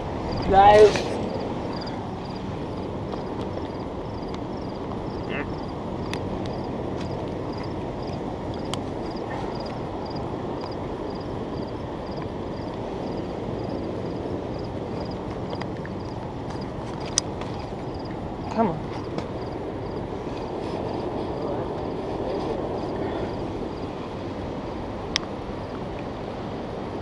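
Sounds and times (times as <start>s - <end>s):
outdoor background rumble: 0.0s - 27.0s.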